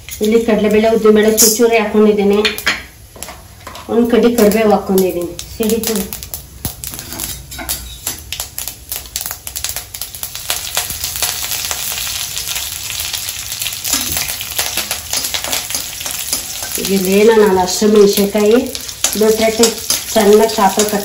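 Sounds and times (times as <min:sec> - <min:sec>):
steady sizzle: 0:00.0 - 0:21.0
seeds crackling and popping in oil: 0:04.0 - 0:21.0
steel spatula stirring: 0:06.8 - 0:08.2, 0:13.9 - 0:17.3.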